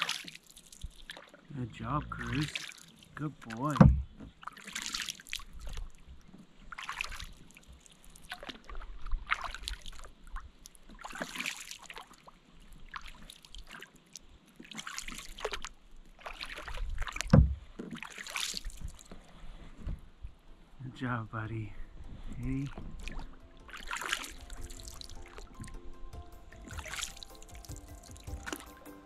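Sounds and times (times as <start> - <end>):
water dripping off paddle: 0.0 - 1.4, 2.2 - 19.2, 22.0 - 28.9
kayak paddle splashing water: 0.0 - 1.5, 2.1 - 20.8, 21.8 - 29.0
low thump: 3.8 - 4.3, 17.3 - 17.6, 25.6 - 28.9.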